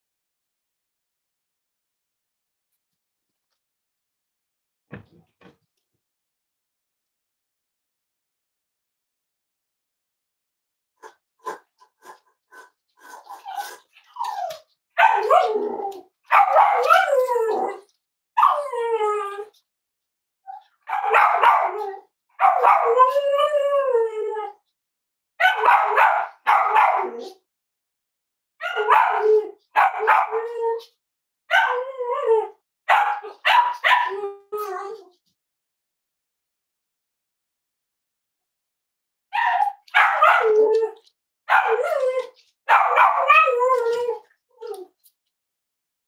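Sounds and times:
dog barking: 15.0s - 15.6s, 16.3s - 17.1s, 20.8s - 23.0s, 25.4s - 27.3s, 28.6s - 30.4s, 31.5s - 31.8s, 32.9s - 34.1s, 39.4s - 40.6s, 41.5s - 42.0s, 42.7s - 43.5s.

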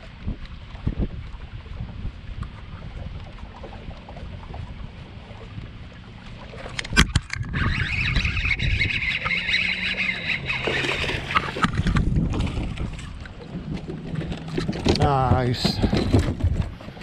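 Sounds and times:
water splashing: 0.0s - 17.0s
fishing reel gears whirring: 6.6s - 12.0s.

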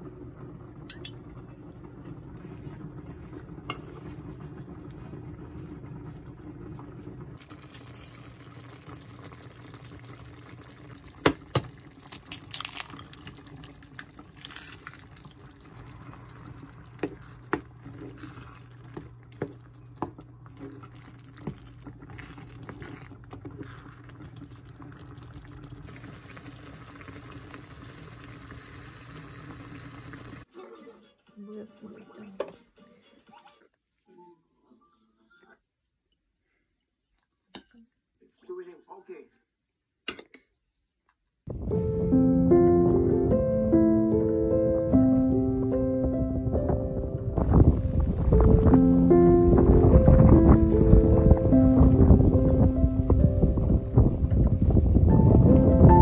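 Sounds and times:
stew bubbling in a pan: 0.0s - 30.5s, 47.4s - 48.8s
steady low hum: 41.5s - 56.0s.

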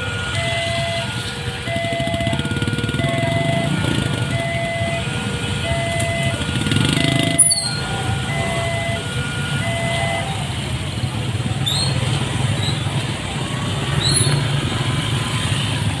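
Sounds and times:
pulsed electronic warning signal: 0.0s - 10.6s
motorcycle engines running: 0.0s - 16.0s.

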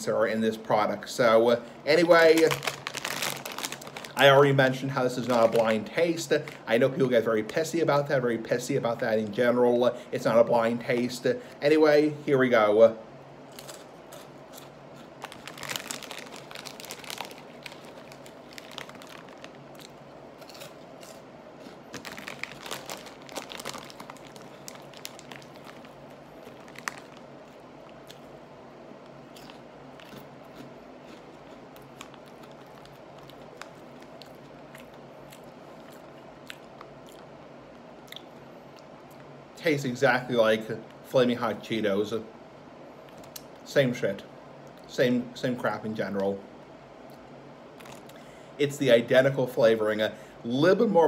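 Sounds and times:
crunchy snack being chewed: 2.4s - 4.2s, 13.5s - 28.4s, 29.0s - 37.4s, 47.8s - 48.2s.

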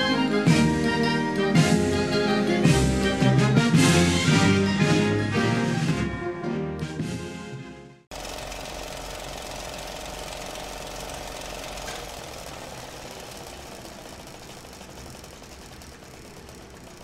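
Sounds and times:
mechanical rattle: 8.1s - 17.0s.

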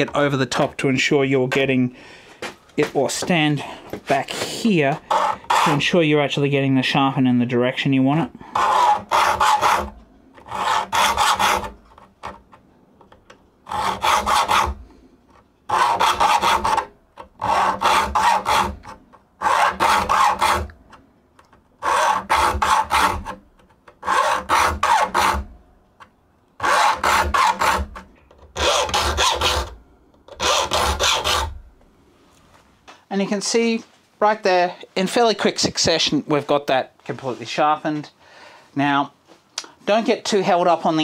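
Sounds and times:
file rasping across saw teeth: 4.9s - 5.9s, 8.5s - 12.4s, 13.6s - 14.8s, 15.7s - 20.8s, 21.8s - 23.4s, 24.0s - 25.5s, 26.6s - 29.8s, 30.4s - 31.6s.

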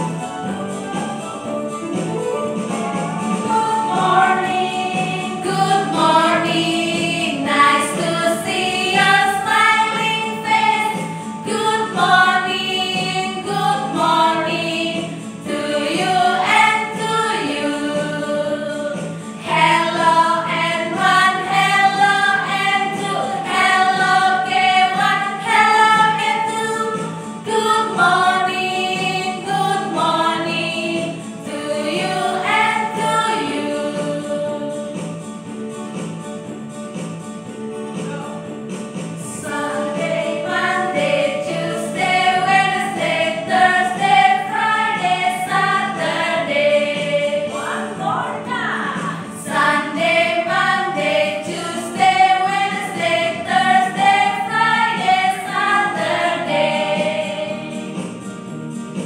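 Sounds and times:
electronic keyboard: 0.0s - 7.5s
women singing in unison: 3.5s - 35.0s, 39.3s - 57.9s.

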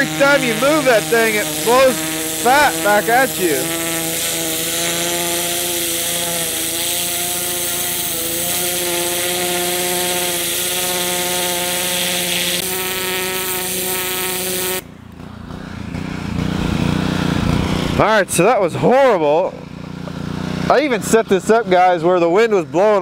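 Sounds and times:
pressure washer spray hissing: 0.0s - 14.8s
motor hum: 0.0s - 18.1s, 19.4s - 23.0s.

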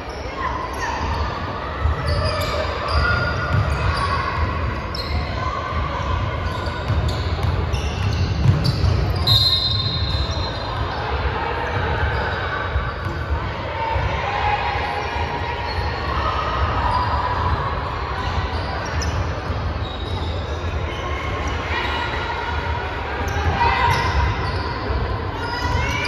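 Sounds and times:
sneakers squeaking on hardwood: 1.8s - 5.4s, 6.3s - 11.0s, 18.5s - 21.1s, 23.3s - 24.9s
basketball bouncing: 3.4s - 3.8s, 6.8s - 9.3s.

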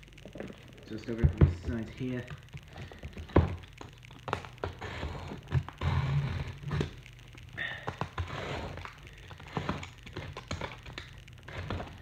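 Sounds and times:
box cutter scraping cardboard: 4.6s - 7.0s, 8.0s - 10.8s.

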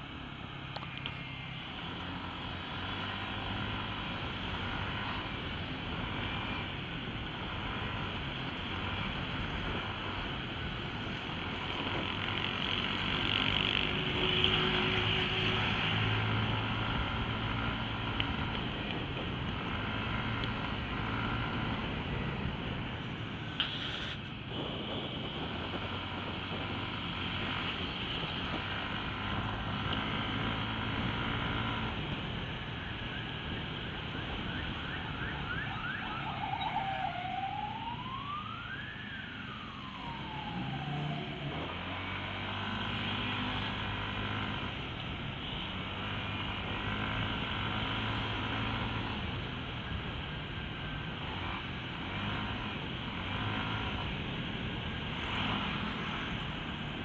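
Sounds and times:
wind and road noise: 0.0s - 57.0s
siren yelping and wailing: 32.7s - 41.8s.

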